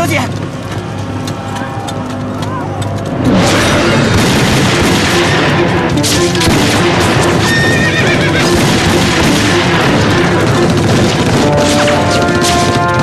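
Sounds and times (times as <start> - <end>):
horses galloping: 0.0 - 5.0, 5.7 - 13.0
dramatic music: 0.0 - 13.0
rapid gunfire: 3.1 - 13.0.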